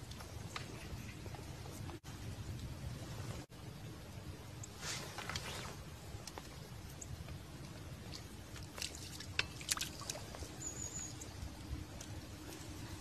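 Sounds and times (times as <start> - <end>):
low background rumble: 0.0 - 13.0
fish splashing in water: 8.1 - 10.6.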